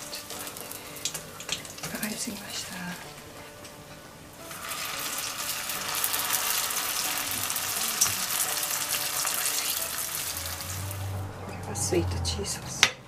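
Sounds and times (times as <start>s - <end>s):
oil sizzling and crackling: 0.0s - 11.3s.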